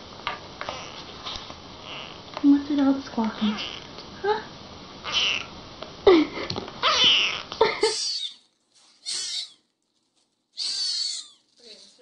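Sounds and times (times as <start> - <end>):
kittens mewing: 0.7 - 1.1, 1.8 - 2.2, 3.4 - 4.0, 5.0 - 5.6, 6.8 - 9.7, 10.6 - 11.6.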